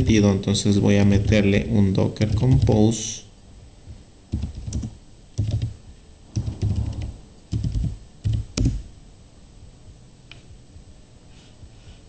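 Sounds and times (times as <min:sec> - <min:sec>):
typing on keyboard: 0:02.3 - 0:02.8, 0:04.3 - 0:05.8, 0:06.4 - 0:08.8.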